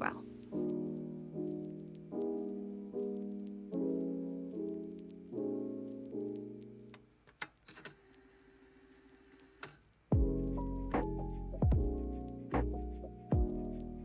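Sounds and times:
soft piano chords: 0:00.0 - 0:07.1, 0:10.1 - 0:14.0.

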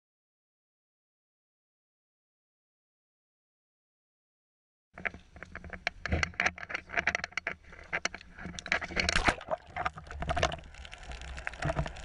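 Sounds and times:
knocks and rustles: 0:05.0 - 0:10.6.

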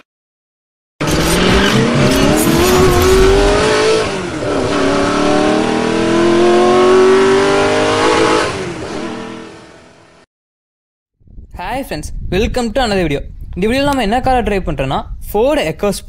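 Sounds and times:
car engine accelerating hard: 0:01.0 - 0:10.2.

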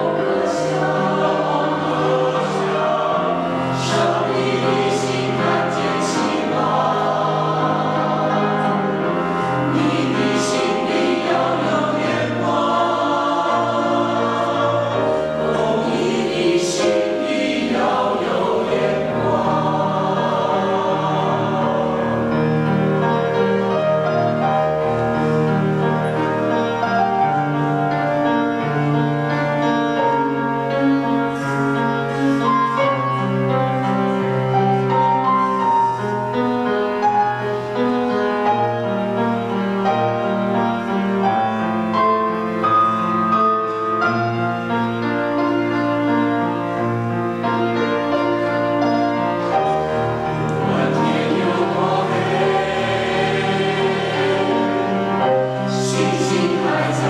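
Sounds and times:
mixed choir singing hymn: 0:00.0 - 0:30.4, 0:44.2 - 0:57.0
piano accompaniment: 0:00.0 - 0:57.0.

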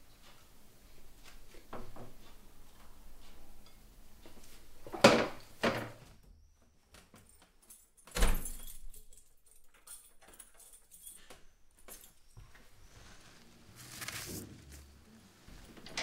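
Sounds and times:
clicking and jingling: 0:07.6 - 0:12.2.

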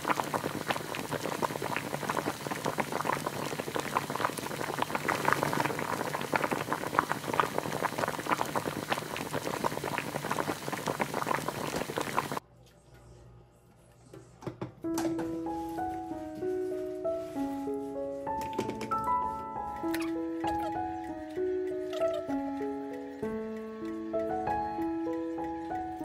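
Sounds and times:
soup boiling and bubbling: 0:00.0 - 0:12.4.

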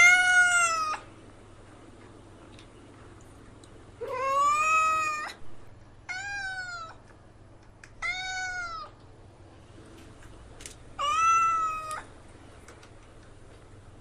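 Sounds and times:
kitten meowing: 0:08.0 - 0:08.9, 0:11.0 - 0:12.1.

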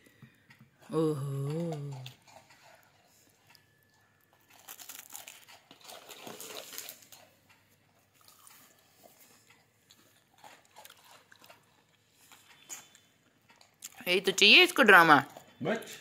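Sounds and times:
crunching biscuit being chewed: 0:01.6 - 0:14.0.

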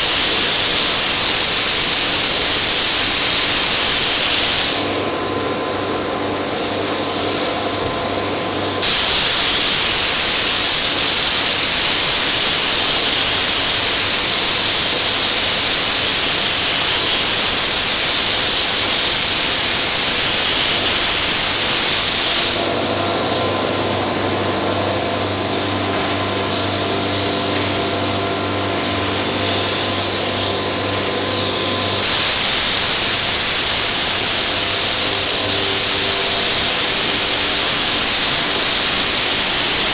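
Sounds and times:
paint spray gun hissing: 0:00.0 - 0:05.2, 0:06.5 - 0:39.9
low machine hum: 0:04.8 - 0:09.5, 0:10.6 - 0:35.6.

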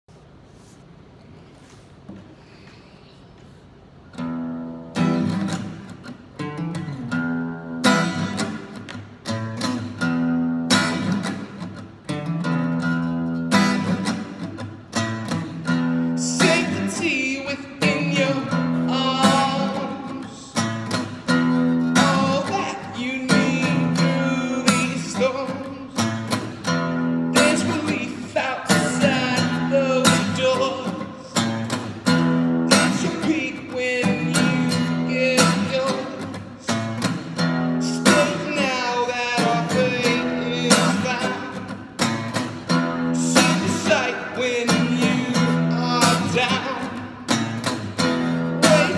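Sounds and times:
strummed acoustic guitar: 0:04.0 - 0:48.9
man singing: 0:16.0 - 0:21.0, 0:21.6 - 0:26.4, 0:27.2 - 0:31.5, 0:32.4 - 0:42.0, 0:42.9 - 0:48.9.

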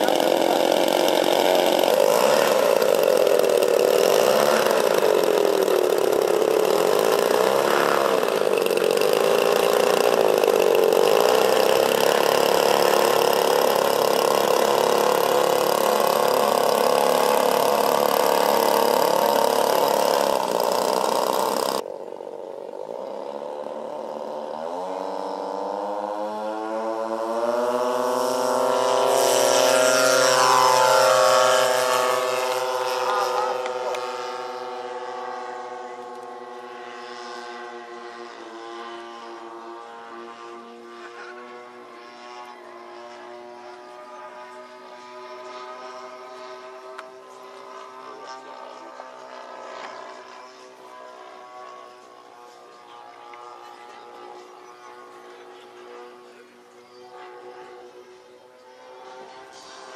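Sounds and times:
model plane propeller engines: 0:00.0 - 0:59.9.

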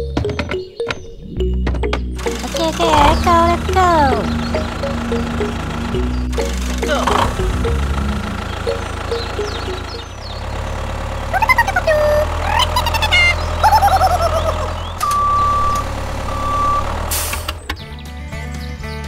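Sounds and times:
tractor engine running: 0:00.0 - 0:18.7
high tone beeps: 0:15.0 - 0:17.0.

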